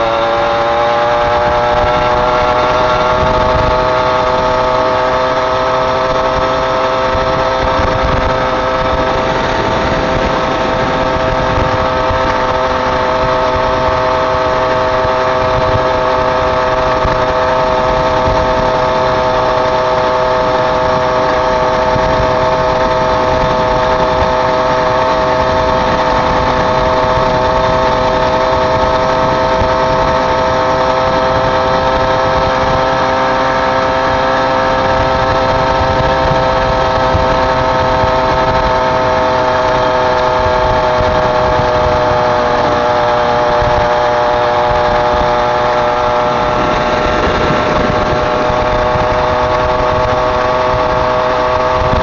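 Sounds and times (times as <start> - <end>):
small engine whining steadily: 0.0 - 52.0
uneven low rumble: 34.9 - 52.0.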